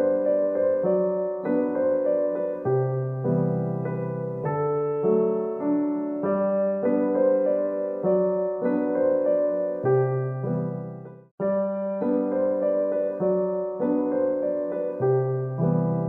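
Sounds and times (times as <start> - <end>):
slow piano music: 0.0 - 16.0.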